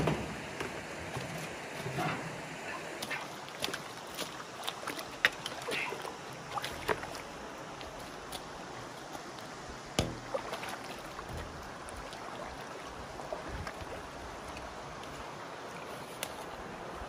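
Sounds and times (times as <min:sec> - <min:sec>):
shallow river water rushing: 0:00.0 - 0:17.0
hose knocking and splashing in water: 0:09.9 - 0:12.1.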